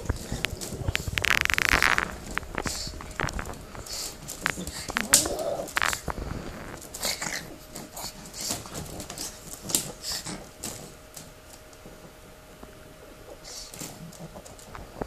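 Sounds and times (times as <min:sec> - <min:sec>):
dogs scuffling in a basket: 0:02.2 - 0:12.1.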